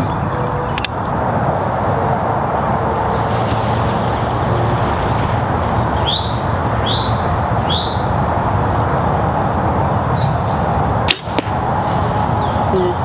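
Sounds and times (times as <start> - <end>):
low rushing background noise: 0.0 - 13.0
bird chirping: 5.7 - 8.2, 10.1 - 10.7, 12.1 - 13.0.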